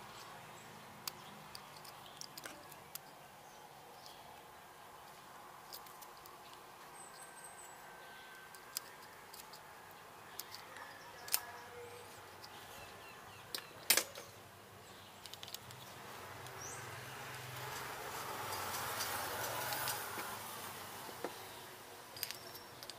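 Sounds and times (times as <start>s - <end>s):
plastic parts and tools clicking: 1.0s - 3.1s, 5.7s - 6.6s, 8.4s - 9.6s, 10.3s - 11.4s, 15.2s - 16.6s, 22.2s - 22.9s.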